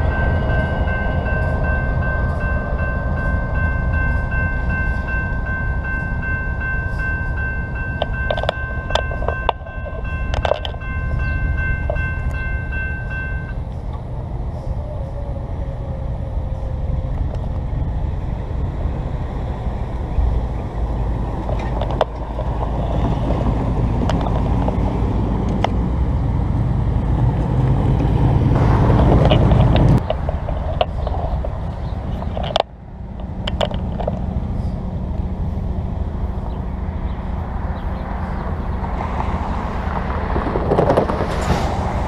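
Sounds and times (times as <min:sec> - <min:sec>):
railroad crossing bell ringing: 0:00.0 - 0:14.2
low rumble: 0:00.0 - 0:42.0.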